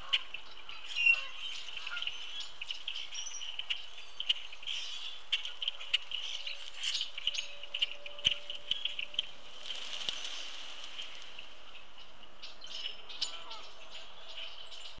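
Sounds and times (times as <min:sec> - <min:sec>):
birds chattering: 0:00.0 - 0:15.0
rush of wings: 0:09.3 - 0:11.6.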